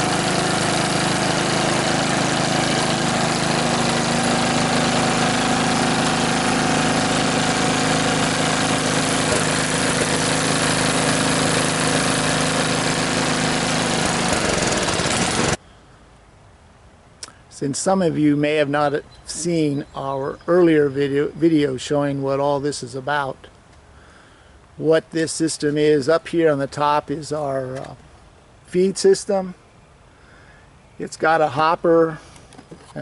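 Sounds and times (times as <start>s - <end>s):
small engine running: 0.0s - 15.6s.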